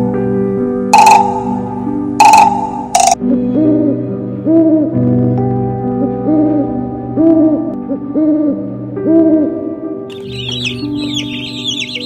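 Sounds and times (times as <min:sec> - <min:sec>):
background music: 0:00.0 - 0:12.0
owl hooting: 0:01.0 - 0:01.6, 0:02.2 - 0:03.9, 0:10.1 - 0:12.0
ducklings peeping: 0:10.1 - 0:12.0.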